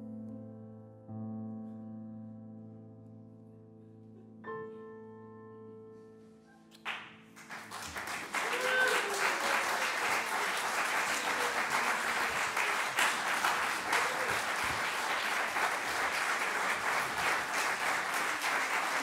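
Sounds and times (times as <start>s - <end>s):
audience applauding: 6.8s - 19.0s.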